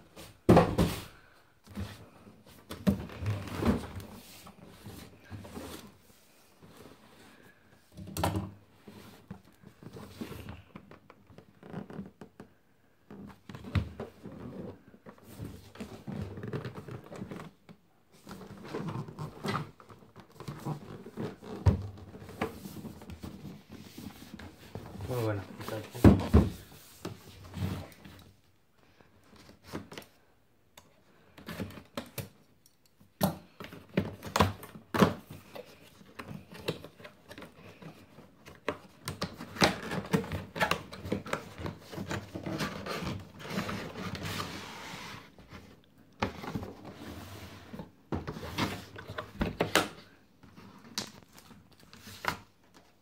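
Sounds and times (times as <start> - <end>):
rubbing and sliding of cardboard: 41.3 - 45.7.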